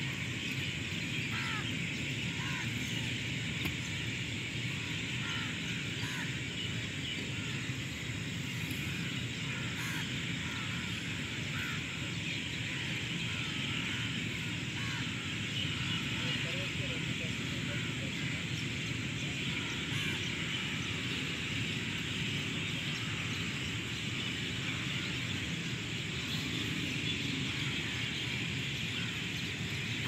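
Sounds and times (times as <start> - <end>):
low rumble and hiss: 0.0 - 30.0
crows cawing: 1.3 - 1.7, 2.3 - 3.0, 4.8 - 6.4, 8.7 - 12.0, 12.7 - 18.4, 19.5 - 20.9.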